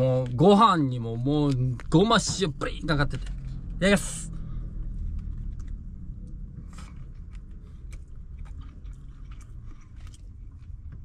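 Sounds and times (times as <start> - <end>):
steady low hum: 0.0 - 11.0
person chewing: 6.6 - 11.0.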